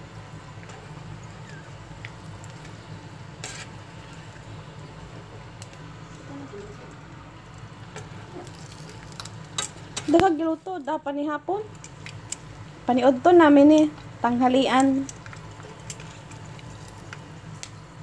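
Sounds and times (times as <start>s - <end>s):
fish sizzling in oil: 0.0s - 18.0s
metal tongs clicking on pan: 9.5s - 10.4s.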